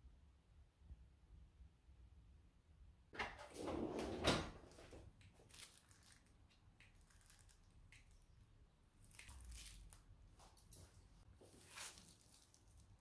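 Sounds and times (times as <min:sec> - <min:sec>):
cling film rustling and crinkling: 0:04.7 - 0:13.0.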